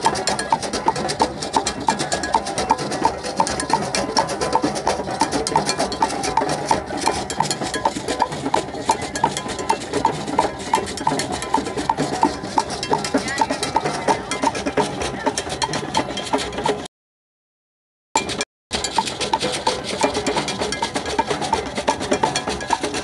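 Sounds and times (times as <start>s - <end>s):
djembe struck close by: 0.0s - 16.9s
hand drums playing: 0.0s - 16.9s, 18.2s - 23.0s.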